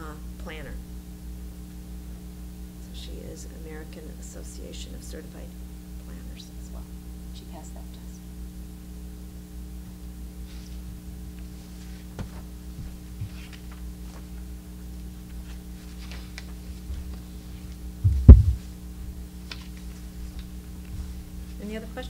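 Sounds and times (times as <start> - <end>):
steady electrical hum: 0.0 - 22.0
paper rustling and shuffling: 10.4 - 21.6
microphone knocked thump: 18.0 - 18.7.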